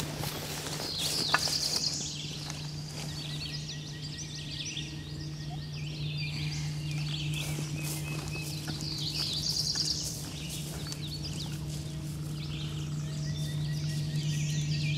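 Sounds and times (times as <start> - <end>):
songbirds singing: 0.0 - 14.9
steady low hum: 0.0 - 14.9.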